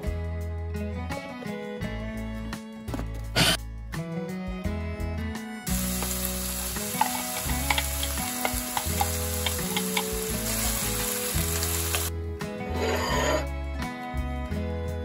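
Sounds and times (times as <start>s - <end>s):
meat and onions sizzling: 5.7s - 12.1s.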